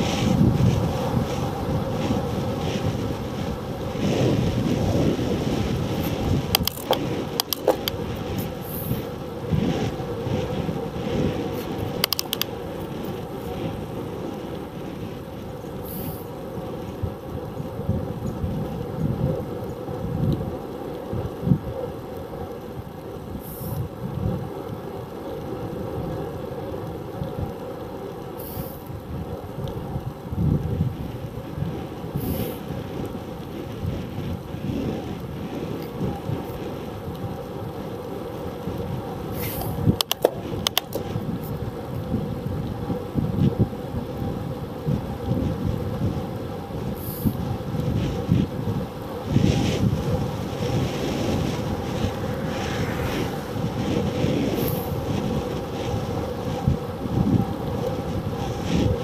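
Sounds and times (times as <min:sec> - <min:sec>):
road rumble: 0:00.0 - 0:59.0
wind buffeting microphone: 0:00.0 - 0:59.0
sharp clicks: 0:06.5 - 0:08.0, 0:12.0 - 0:12.5.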